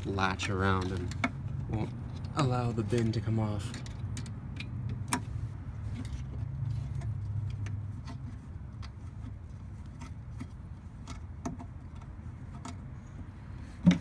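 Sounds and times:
low steady traffic hum: 0.0 - 14.0
metallic clicks of nut and bolt: 3.0 - 5.3.

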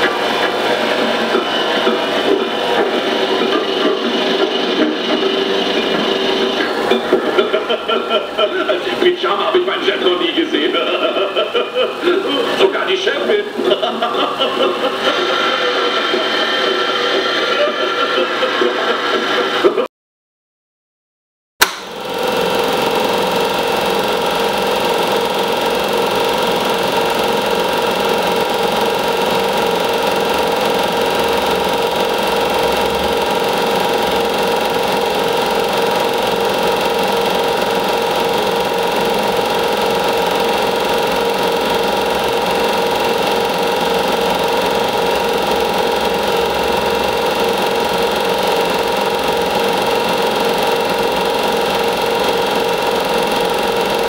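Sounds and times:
film projector whirring and clattering: 0.0 - 19.9, 21.6 - 54.0.

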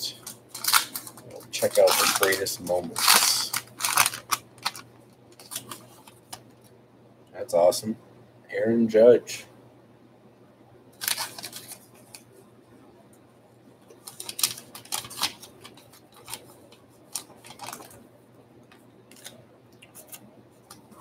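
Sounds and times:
card packaging crinkling and rustling: 0.1 - 6.7, 11.0 - 12.3, 13.9 - 18.0, 18.7 - 21.0.

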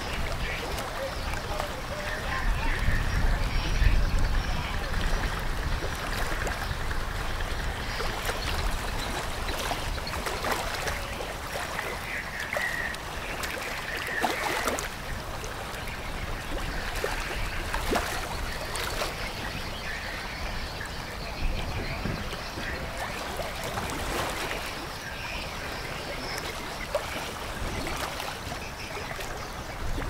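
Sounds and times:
river water splashing and lapping: 0.0 - 30.0.

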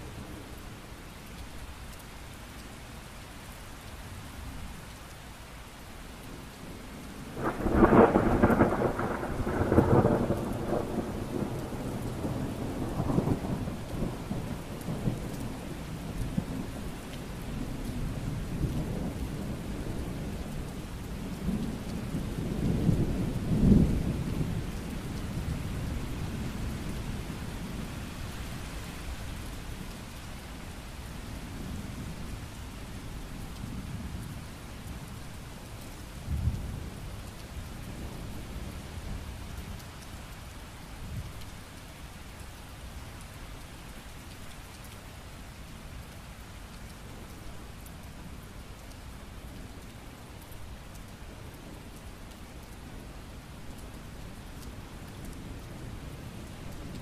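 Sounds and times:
steady rainfall: 0.0 - 57.0
thunder rumbling: 7.3 - 16.5.

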